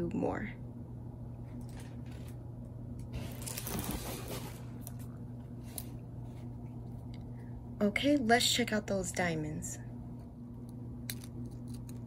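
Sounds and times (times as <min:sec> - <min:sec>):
steady low hum: 0:00.0 - 0:12.0
plastic crinkling and rustling: 0:03.2 - 0:05.0.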